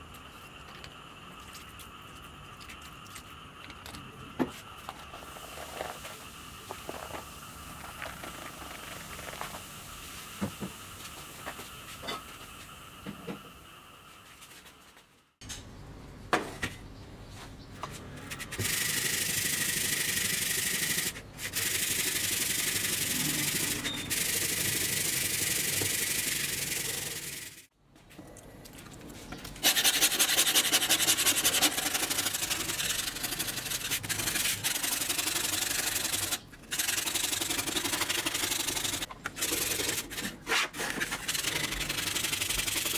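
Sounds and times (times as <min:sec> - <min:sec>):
liquid fizzing and crackling: 0:04.8 - 0:10.4
metal scraper rubbing rust: 0:29.6 - 0:37.0
brush scrubbing metal blade: 0:29.6 - 0:42.9.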